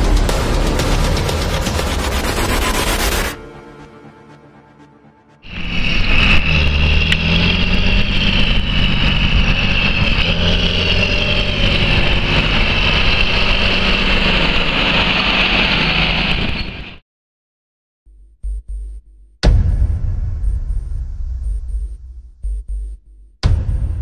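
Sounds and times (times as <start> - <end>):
tractor diesel engine running: 0.0 - 3.3, 5.4 - 16.6.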